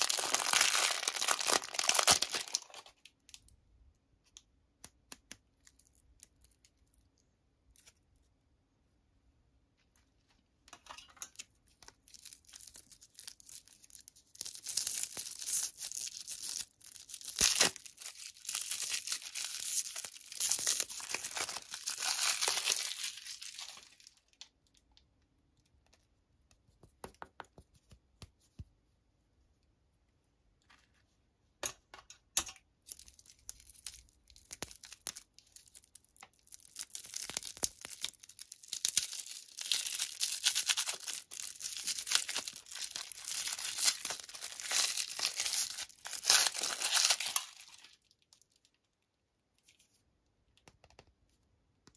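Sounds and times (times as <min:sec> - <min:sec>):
wrappers crinkling and tearing: 0:00.0 - 0:03.1, 0:12.0 - 0:24.4, 0:32.9 - 0:48.7.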